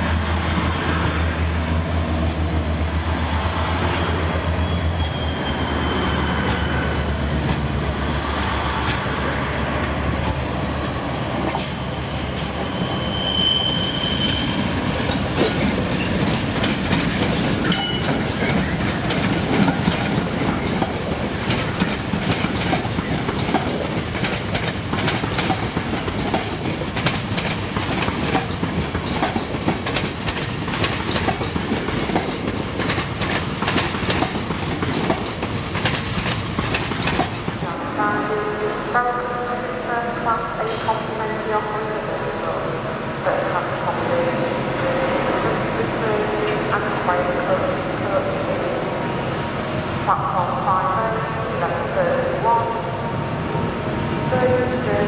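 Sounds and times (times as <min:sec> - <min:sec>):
clickety-clack over rail joints: 0:00.0 - 0:03.0, 0:06.4 - 0:07.9, 0:08.8 - 0:09.4, 0:14.9 - 0:37.7
train wheels rumbling: 0:00.0 - 0:38.5
high wheel squeals: 0:04.0 - 0:07.0, 0:11.8 - 0:14.7.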